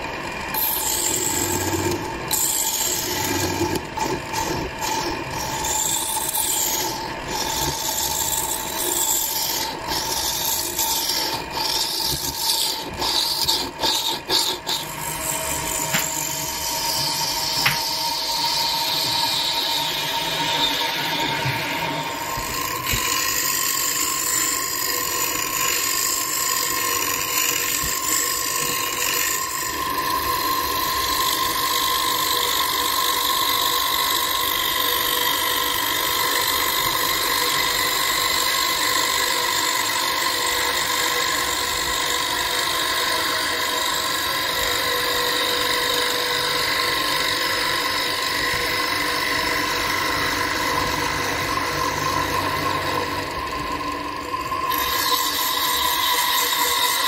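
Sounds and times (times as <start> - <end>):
wood lathe whining: 0.0 - 57.0.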